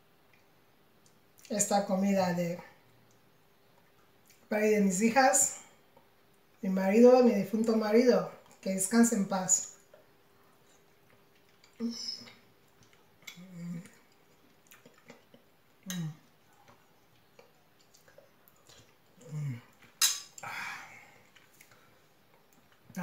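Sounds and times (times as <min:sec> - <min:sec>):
person humming: 0:13.4 - 0:13.9.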